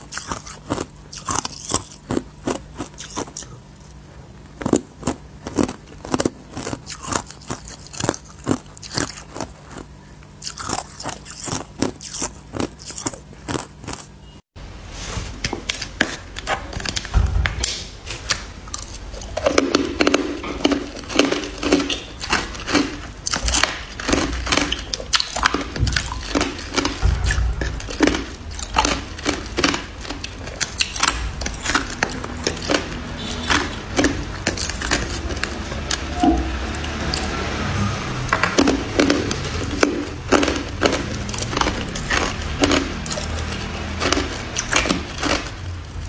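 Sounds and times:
gritty scraping: 25.6 - 46.0.

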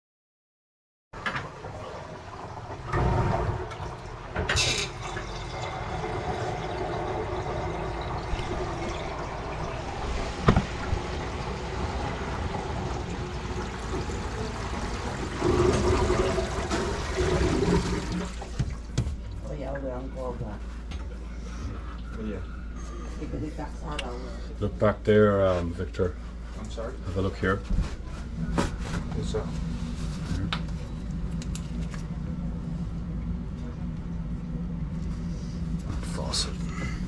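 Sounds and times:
water rushing down drain: 1.2 - 18.9.

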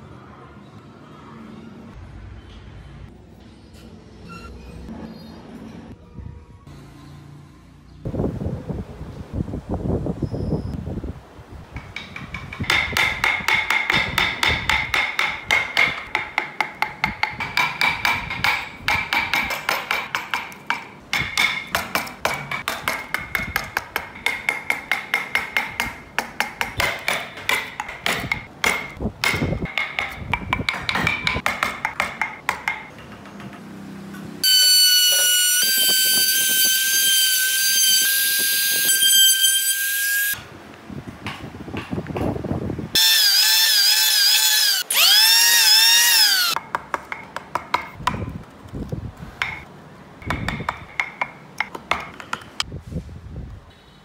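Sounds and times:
chisel tapping wood: 11.8 - 33.5, 46.6 - 48.2, 49.4 - 52.6
router whining: 43.0 - 46.6.

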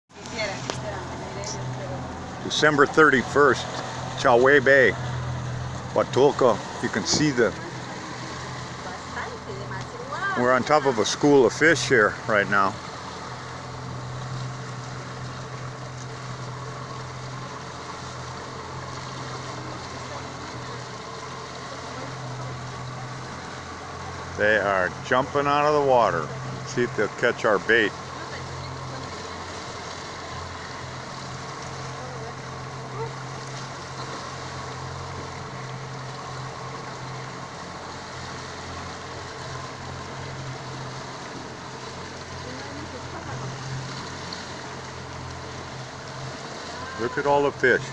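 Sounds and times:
boat engine humming: 0.0 - 47.9
water and wind hiss: 0.1 - 47.9.

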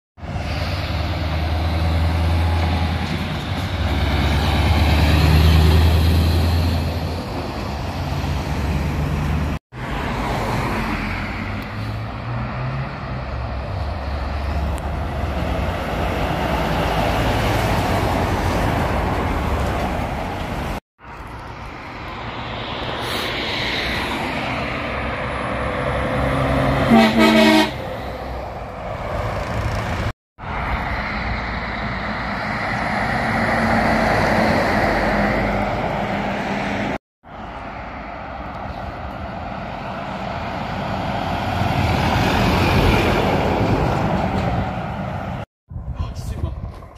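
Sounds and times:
lorries driving past: 0.2 - 46.9
truck horn blast: 26.7 - 27.9.

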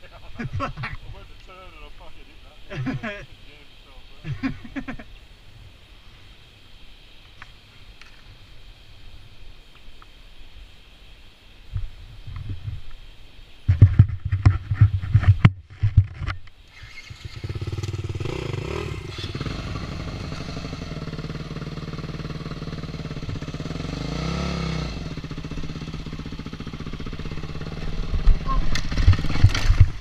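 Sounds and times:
dirt bike engine: 13.7 - 30.0.

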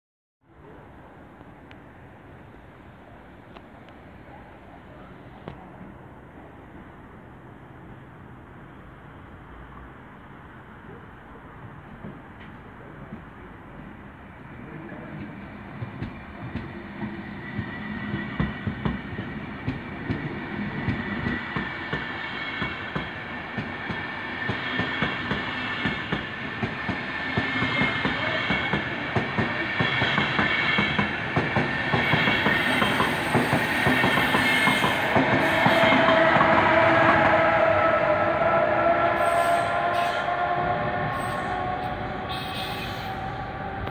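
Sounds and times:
electric locomotive whine: 12.0 - 43.9
train wheels clicking over rail joints: 15.8 - 36.6.

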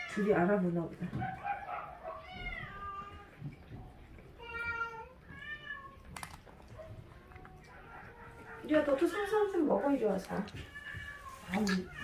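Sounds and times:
cat meowing: 2.0 - 3.4, 4.4 - 6.1.

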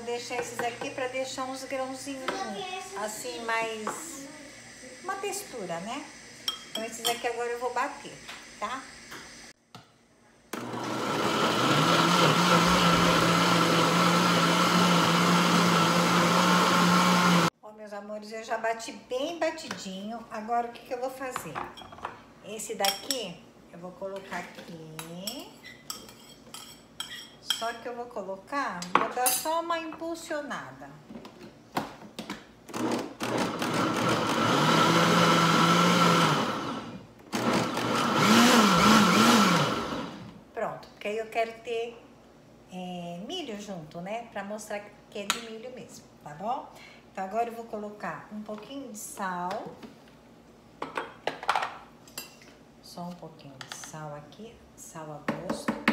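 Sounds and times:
blender motor running: 10.5 - 17.5, 32.7 - 40.3.

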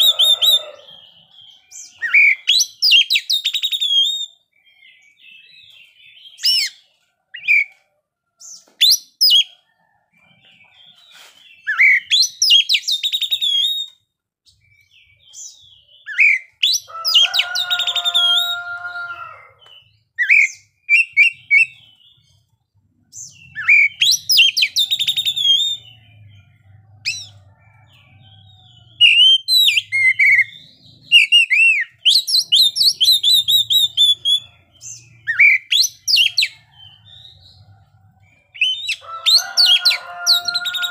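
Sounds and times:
bird singing whistles and trills: 0.0 - 6.8, 8.4 - 9.6, 11.6 - 14.0, 14.8 - 18.6, 20.2 - 22.0, 23.2 - 26.3, 28.7 - 36.6, 38.5 - 39.4.

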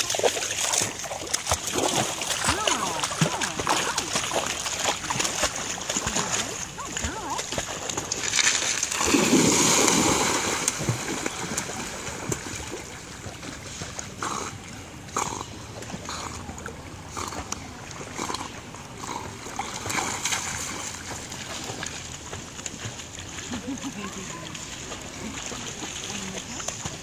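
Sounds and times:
dog splashing through shallows: 0.0 - 13.1
dog plunging into water: 0.0 - 22.0
dog paddling splashes: 0.0 - 27.0.

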